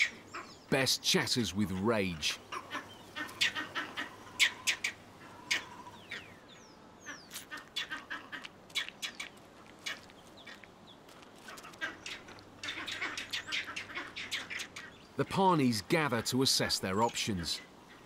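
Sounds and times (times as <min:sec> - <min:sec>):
monkeys chattering harshly: 0:00.0 - 0:00.7, 0:01.6 - 0:06.3, 0:11.5 - 0:15.0.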